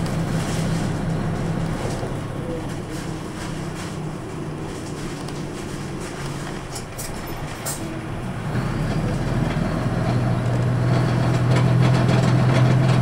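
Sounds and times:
bus diesel engine humming: 0.0s - 13.0s
road noise: 0.0s - 13.0s.

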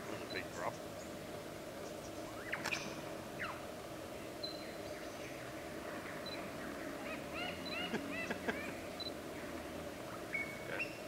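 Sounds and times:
lyrebird singing: 1.8s - 11.0s.

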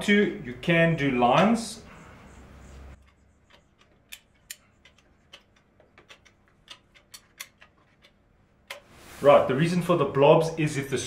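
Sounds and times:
sealant gun clicking: 3.0s - 8.9s.

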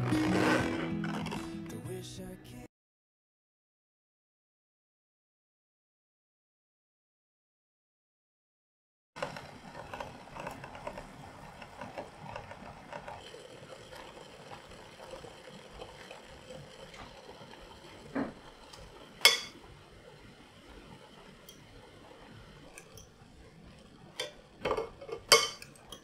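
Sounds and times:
water boiling with bubbles: 9.2s - 26.0s
metal fork clinking against glass: 19.2s - 19.6s, 25.2s - 26.0s.

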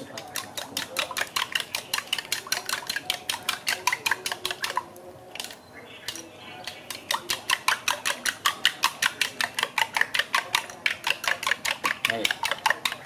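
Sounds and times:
spoon beating egg in a bowl: 0.0s - 13.0s.

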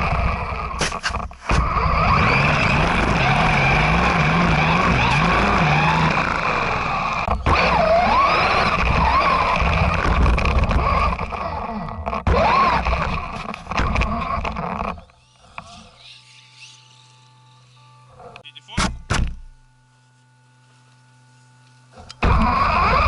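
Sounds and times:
wheels rumbling through snow: 0.0s - 15.9s, 22.0s - 23.0s
toy truck motor whine: 0.0s - 18.4s, 21.9s - 23.0s.

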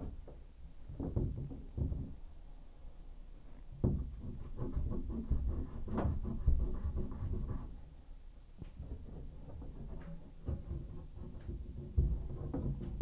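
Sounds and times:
tools knocking and scraping on pipes: 8.6s - 13.0s.

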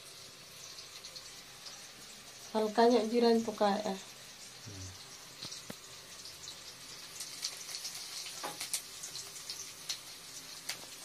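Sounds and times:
seeds sizzling in hot oil: 0.0s - 11.0s
small pops and crackles: 5.4s - 11.0s.

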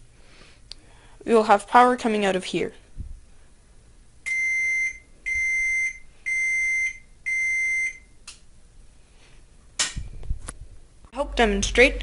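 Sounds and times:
microwave beeps: 4.3s - 8.2s.

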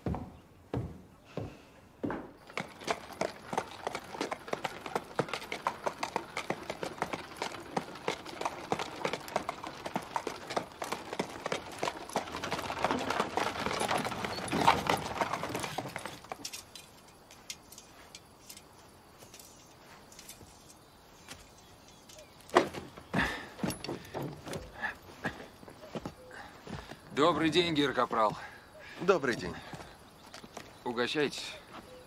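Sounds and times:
horse hooves clip-clopping on dirt: 0.0s - 28.4s, 29.1s - 30.9s.

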